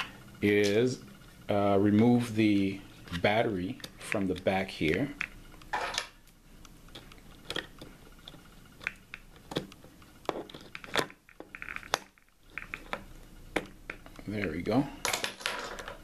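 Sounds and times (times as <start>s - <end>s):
battery rattle: 6.9s - 14.2s.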